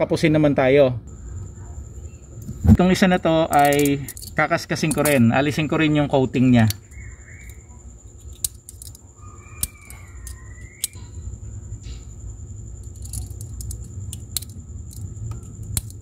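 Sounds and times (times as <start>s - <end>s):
steady low hum: 0.9s - 16.0s
scissor blade scraping wire: 8.2s - 11.1s, 12.9s - 16.0s.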